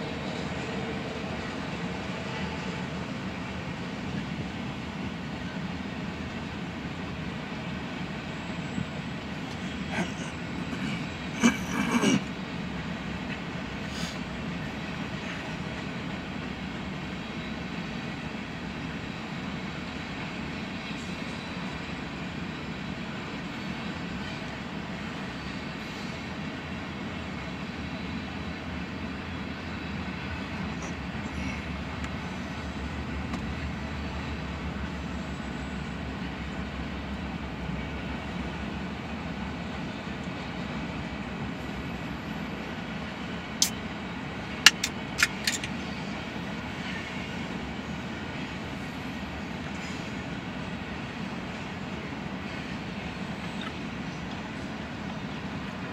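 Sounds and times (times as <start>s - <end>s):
train wheels rolling on rail: 0.0s - 55.9s
sharp clicks: 44.7s - 45.8s.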